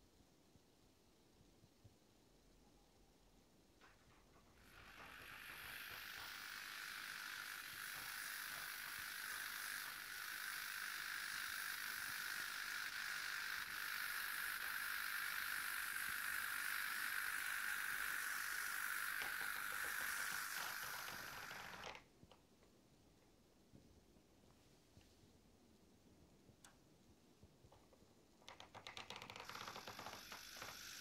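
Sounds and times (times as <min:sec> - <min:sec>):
model train motor whining: 0:03.8 - 0:22.1, 0:28.5 - 0:31.0.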